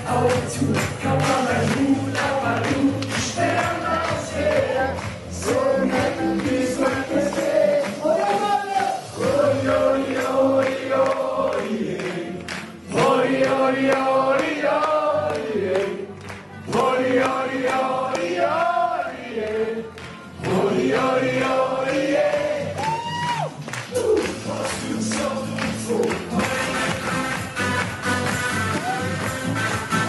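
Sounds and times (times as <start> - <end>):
man singing into microphone: 0.0 - 12.2, 24.0 - 27.0
voices singing along: 0.0 - 16.1, 16.7 - 23.0, 24.2 - 27.0
music: 0.0 - 30.0.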